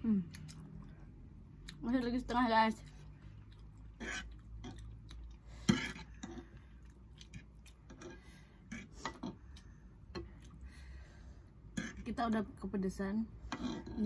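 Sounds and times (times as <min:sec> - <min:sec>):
chewing noodles: 0:02.7 - 0:08.0.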